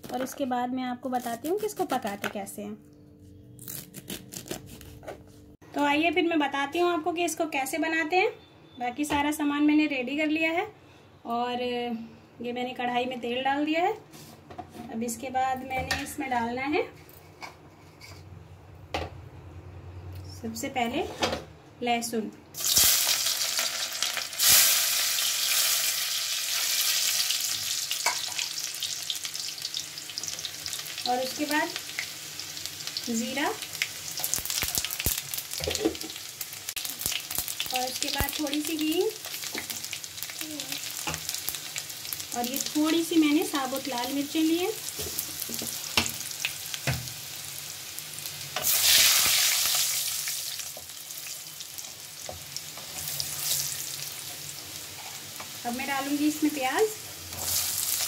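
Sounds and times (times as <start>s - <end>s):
garlic sizzling in hot oil: 22.6s - 58.0s.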